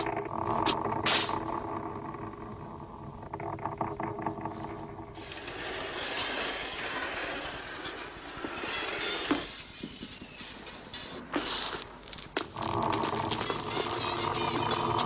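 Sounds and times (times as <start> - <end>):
low steady drone: 0.0 - 6.5, 12.5 - 15.0.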